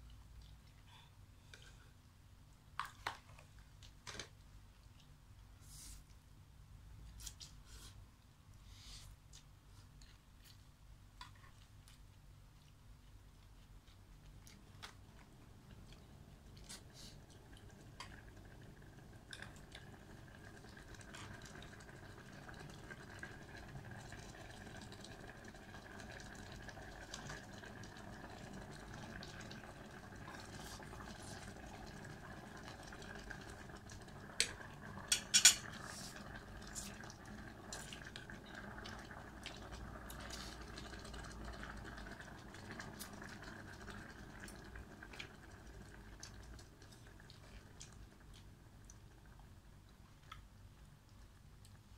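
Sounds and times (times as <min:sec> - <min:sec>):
faint steady hiss: 0:00.0 - 0:51.9
cutlery clinking on metal pot: 0:35.1 - 0:35.7.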